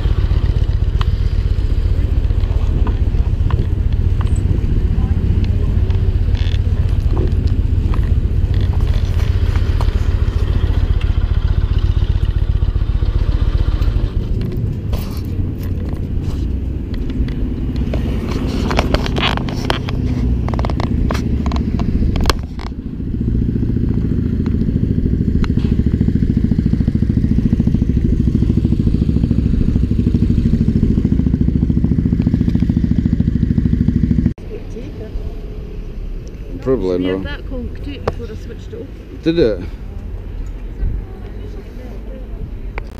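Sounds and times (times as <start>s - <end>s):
motorcycle engine idling: 0.0s - 34.4s.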